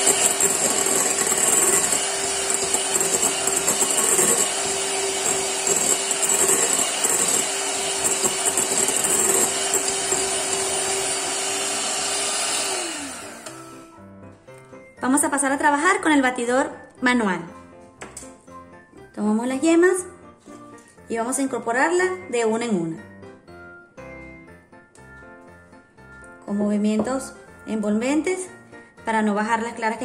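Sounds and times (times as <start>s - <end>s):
electric hand mixer whipping: 0.0s - 14.0s
mixer motor spinning down: 0.0s - 14.0s.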